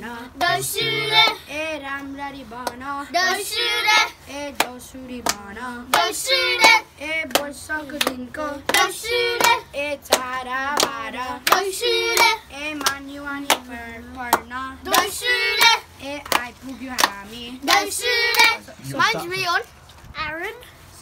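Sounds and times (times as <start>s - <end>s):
children singing together: 0.0s - 4.6s, 5.8s - 13.8s, 14.7s - 15.9s, 17.6s - 18.6s
hand claps: 4.6s - 18.6s.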